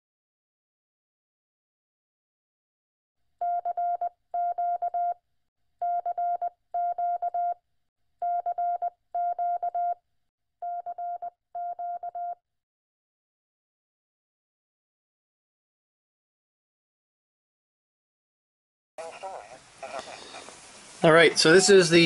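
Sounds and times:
morse code tone: 3.4 - 5.2, 5.8 - 7.6, 8.2 - 10.0, 10.6 - 12.4.

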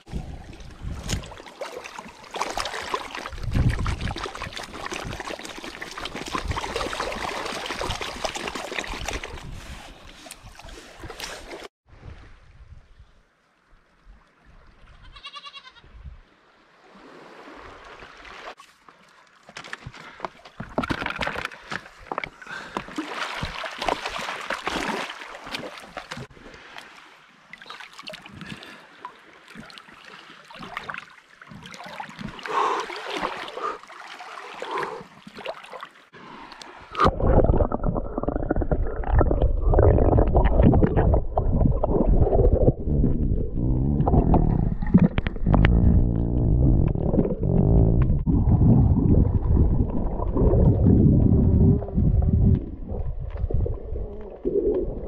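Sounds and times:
water splashing and sloshing: 0.0 - 15.0, 16.0 - 55.0
muffled low rumbling: 37.3 - 55.0.

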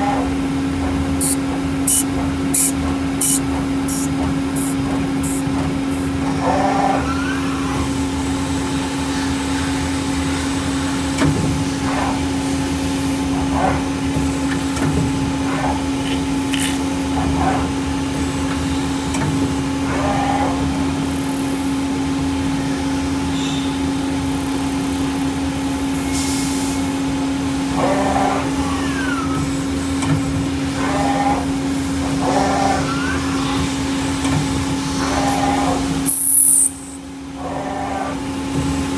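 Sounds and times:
low machine rumble: 0.0 - 9.0
lathe humming: 1.2 - 6.2.

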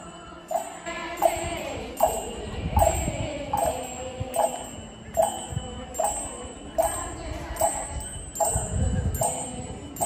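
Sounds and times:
background music with chime: 0.0 - 10.0.

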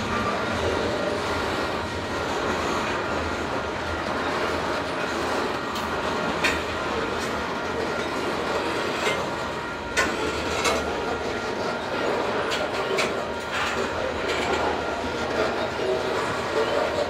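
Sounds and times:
freight train rumbling past: 0.0 - 17.0
train wheel clacks: 0.0 - 17.0.

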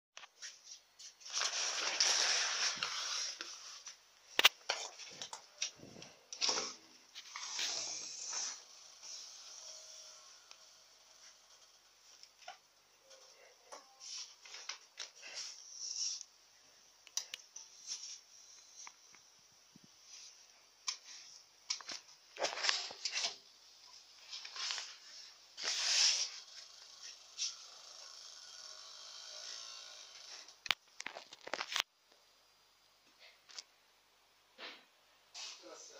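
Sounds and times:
phone rustling and scraping: 0.2 - 9.8, 21.0 - 27.6, 30.6 - 31.9
rustling of cloth curtains: 0.3 - 4.0.

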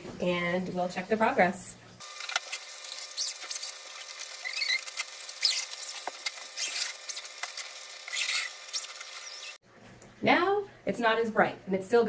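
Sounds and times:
small squeaks: 2.9 - 7.4, 8.0 - 9.6
zipper being pulled: 8.1 - 9.6.

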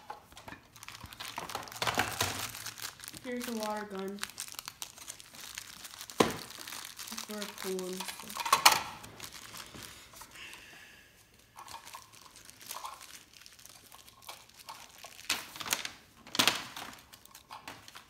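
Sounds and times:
plastic packaging crinkling: 0.0 - 10.6, 11.2 - 18.0
plastic parts clicking: 7.9 - 9.0.

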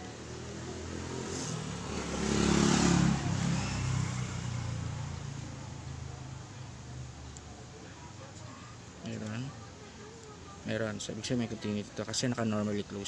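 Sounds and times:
vehicle engine passing by: 0.1 - 6.3.

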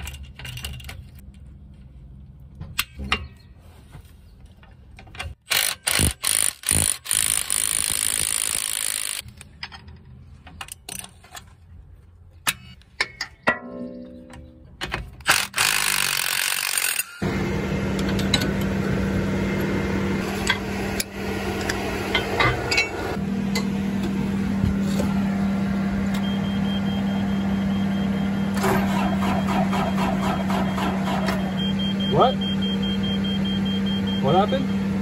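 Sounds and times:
steady machine hum: 17.2 - 35.0
high warning beep: 26.2 - 28.6, 31.4 - 34.8.

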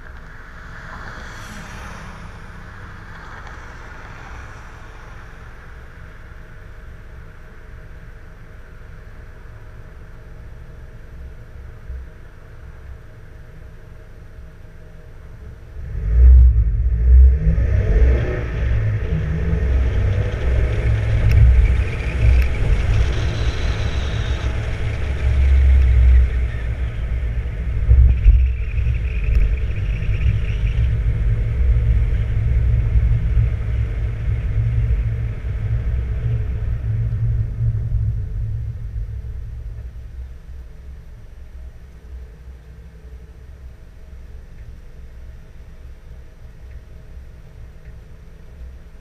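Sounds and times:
rising turbo whine: 0.0 - 9.2, 14.8 - 42.6
deep exhaust rumble: 0.0 - 49.0
car engine accelerating: 15.5 - 40.8.

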